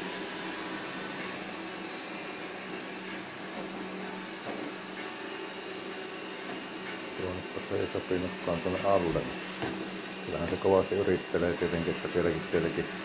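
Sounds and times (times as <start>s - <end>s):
robot vacuum motor humming: 0.0s - 13.0s.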